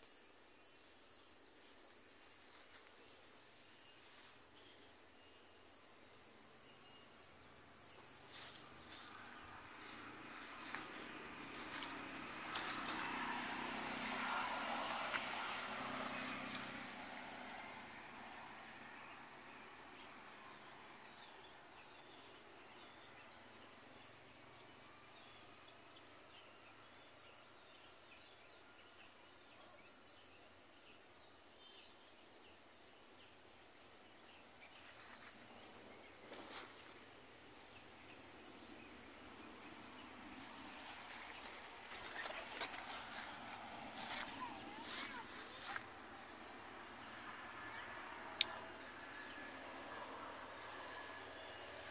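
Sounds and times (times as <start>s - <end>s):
high-pitched insect drone: 35.0s - 51.9s.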